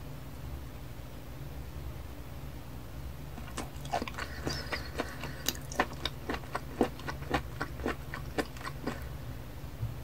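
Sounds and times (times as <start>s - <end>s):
wet mouth clicks and smacks: 3.4s - 9.0s.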